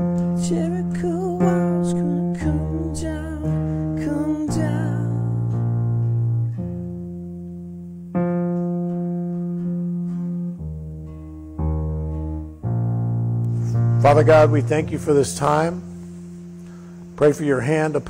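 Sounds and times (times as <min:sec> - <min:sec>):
person singing with vibrato: 0:00.0 - 0:05.8
guitar and keyboard chords: 0:00.0 - 0:18.0.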